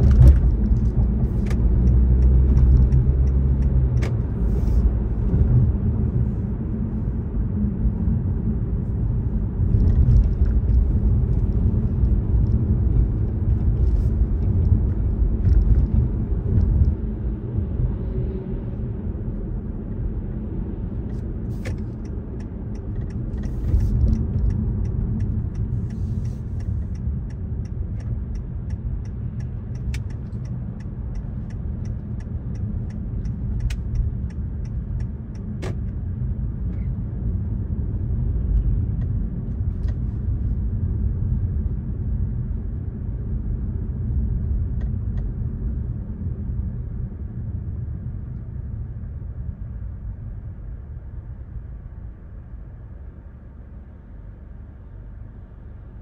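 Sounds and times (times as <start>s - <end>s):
car driving at speed: 0.0s - 56.0s.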